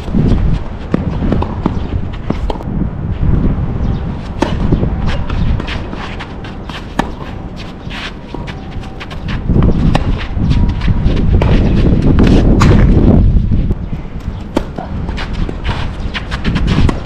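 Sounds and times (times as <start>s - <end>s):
steady low rumble: 0.0s - 17.0s
racket striking tennis ball: 0.9s - 2.6s, 4.3s - 10.3s, 11.3s - 13.0s, 14.4s - 17.0s
footsteps on court: 4.3s - 13.1s, 14.2s - 17.0s.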